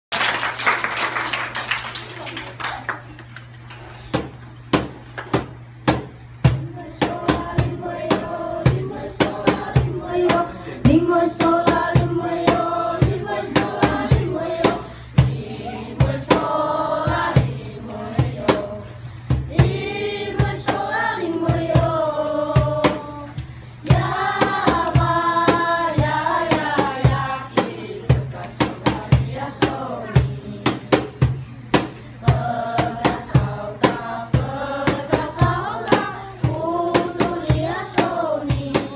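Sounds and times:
sharp percussive beat: 4.2s - 15.4s
children singing: 6.7s - 18.9s, 19.5s - 31.0s, 32.2s - 38.9s.

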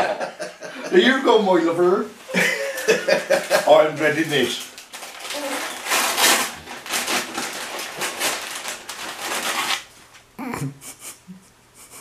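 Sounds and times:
wrapping paper rustling and tearing: 2.2s - 10.3s.

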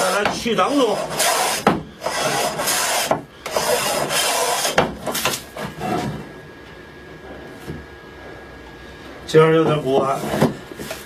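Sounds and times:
hand plane shaving wood: 0.0s - 4.8s.

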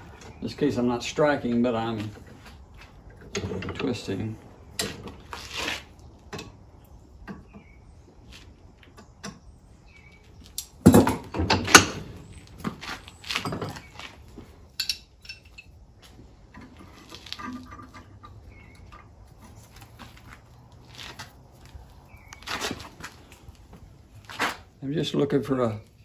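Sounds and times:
steel tools clanking on vise: 14.7s - 15.7s.

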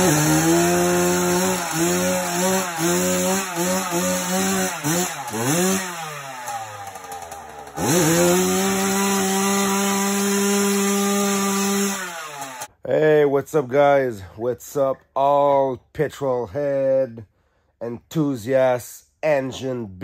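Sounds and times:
two-stroke engine revving: 0.0s - 12.7s.

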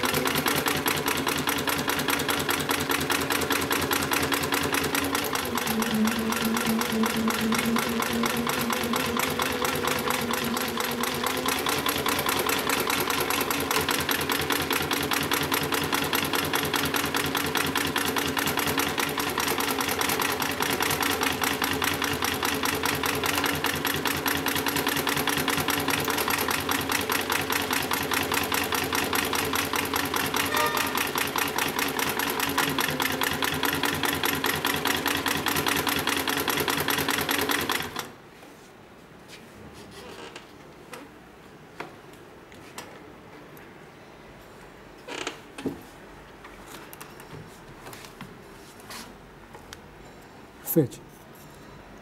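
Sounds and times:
industrial sewing machine stitching: 0.0s - 38.1s
motor hum: 5.1s - 11.4s.

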